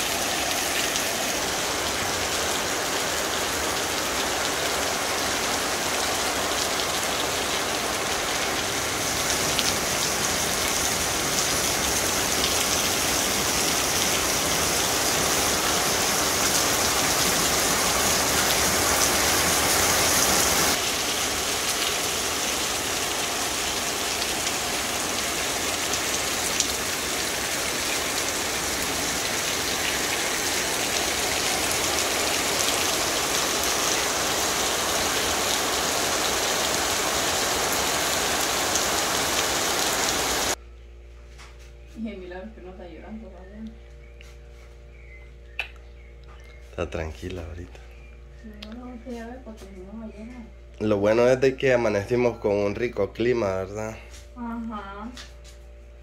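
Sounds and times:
heavy rain splashing on ground: 0.0 - 40.6.

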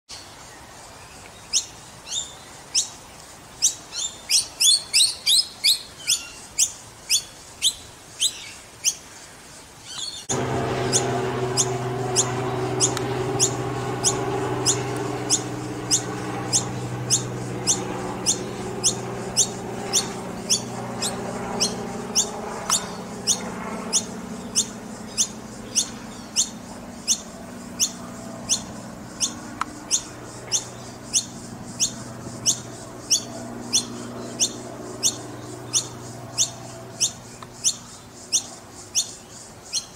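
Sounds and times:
fledgling birds chirping: 9.9 - 39.9
low engine-like hum: 10.2 - 39.5.

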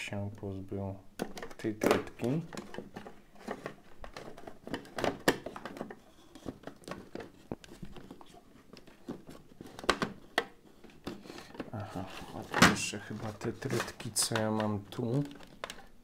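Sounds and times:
plastic parts clicking and knocking: 1.1 - 16.0.

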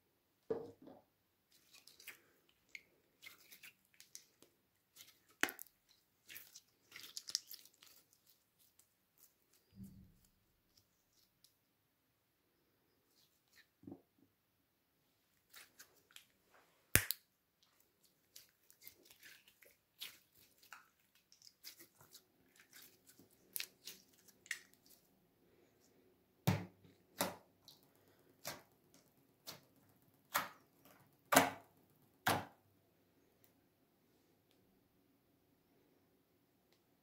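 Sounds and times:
slime squelching and popping: 1.5 - 10.2, 16.9 - 25.1.

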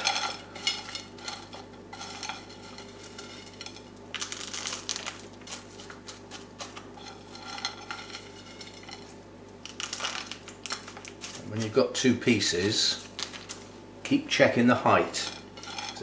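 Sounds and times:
bark chips clattering in tin and pot: 0.0 - 13.7, 14.9 - 16.0.

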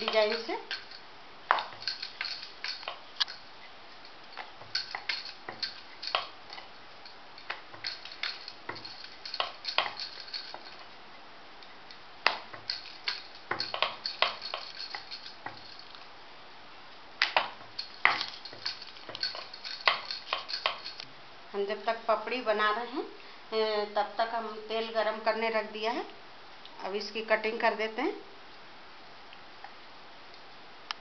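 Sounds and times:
glass bangles jingling: 0.0 - 10.9, 12.3 - 16.1, 17.4 - 21.0.

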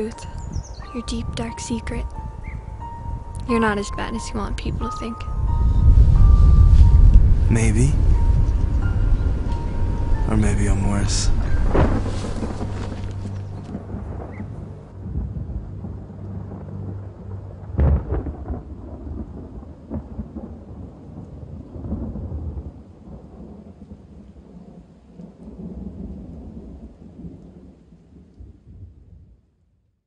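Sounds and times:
low rolling thunder: 0.0 - 29.4
rain: 0.0 - 29.6
sharp thunderclap: 5.4 - 27.7.

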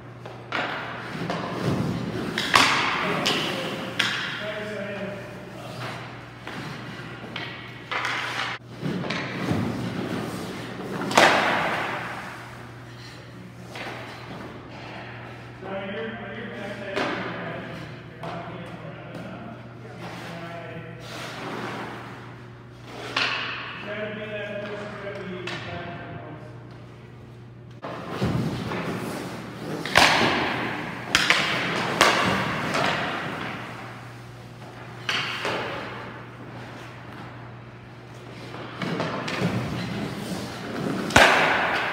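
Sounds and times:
steady low hum: 0.0 - 41.9
pucks and skates on ice: 0.2 - 25.8, 27.8 - 41.9
sharp puck hit: 2.3 - 4.4, 11.0 - 12.3, 29.8 - 33.6, 40.8 - 41.9.

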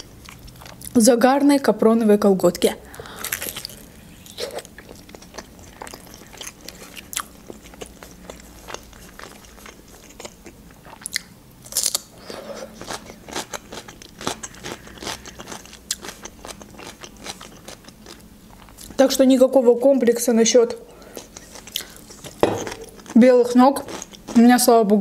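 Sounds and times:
crunchy chewing: 2.9 - 19.0, 21.0 - 23.2.

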